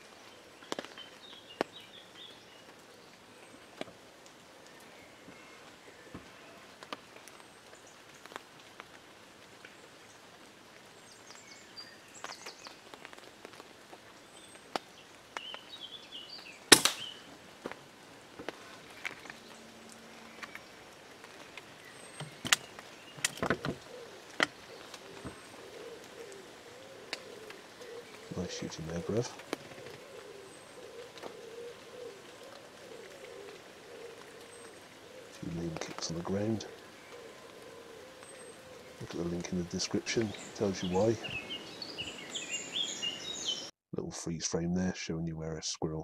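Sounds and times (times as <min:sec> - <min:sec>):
small scattered ticks: 0:00.0 - 0:42.9
air rifle shot: 0:16.7 - 0:17.2
faint bird chirps: 0:18.9 - 0:43.7.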